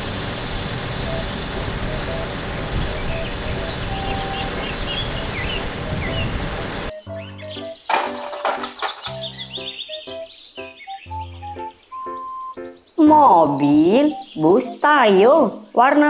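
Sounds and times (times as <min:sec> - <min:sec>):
soft background music: 0:00.2 - 0:16.0
faint bird chirps: 0:09.1 - 0:15.2.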